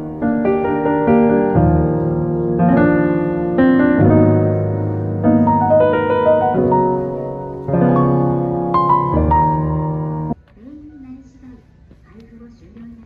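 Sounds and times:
piano music: 0.0s - 10.4s.

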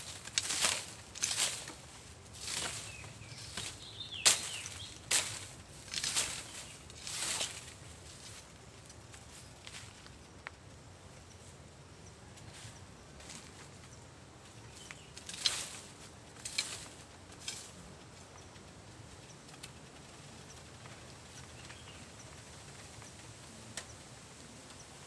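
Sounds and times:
dry leaves rustling and crackling: 0.0s - 10.8s, 12.3s - 25.0s.

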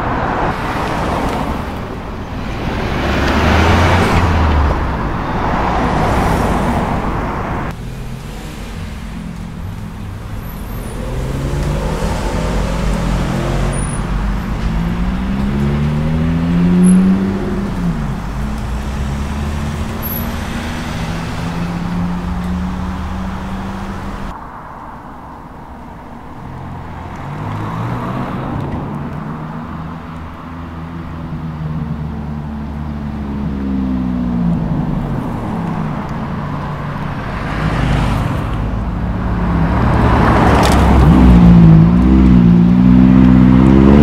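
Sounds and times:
engine revving: 2.4s - 24.4s, 31.6s - 44.0s
sports cars accelerating past: 2.6s - 24.4s, 33.0s - 44.0s.

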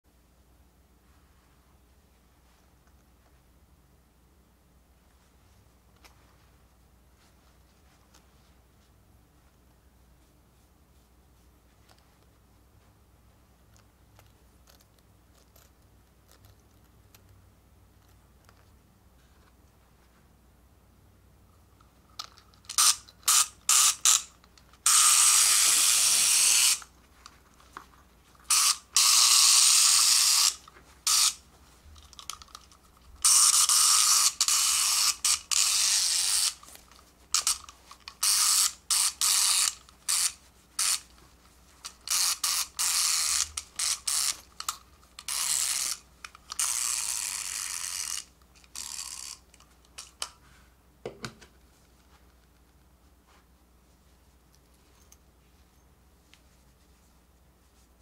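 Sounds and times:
toy clippers buzzing: 22.7s - 26.9s, 28.5s - 31.4s, 33.2s - 36.7s, 37.3s - 41.1s, 41.8s - 49.4s.

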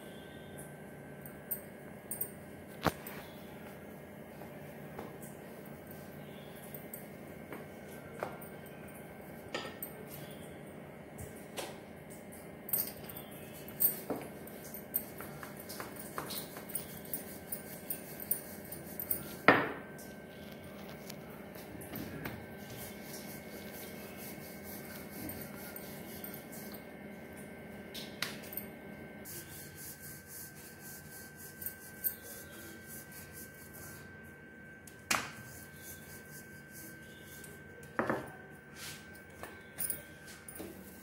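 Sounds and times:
rolling pin rubbing on dough: 15.0s - 19.5s, 22.4s - 26.9s, 29.3s - 34.3s, 35.3s - 37.6s.

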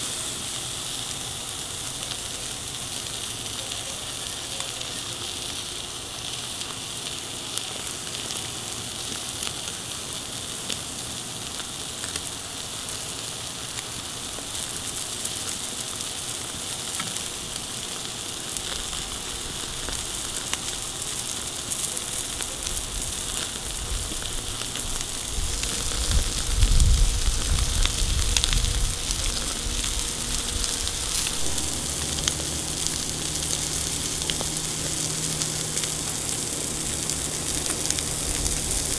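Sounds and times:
steaks sizzling on a grill: 0.0s - 38.9s
low rumble: 25.2s - 38.9s.

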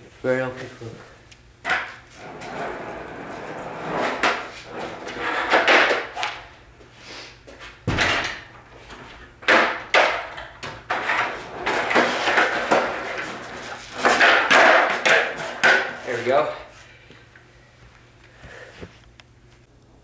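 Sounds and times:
skateboard wheels rolling on concrete: 1.7s - 6.5s, 8.8s - 16.4s
skateboard clacks and slaps: 5.2s - 6.4s, 9.4s - 16.0s.

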